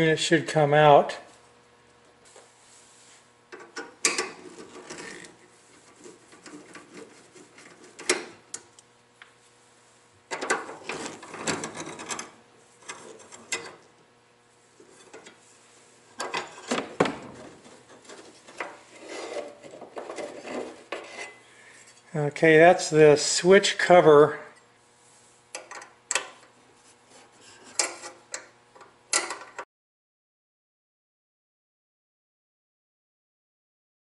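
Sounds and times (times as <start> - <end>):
screwdriver rasping on metal: 4.1 - 8.3, 17.6 - 21.4.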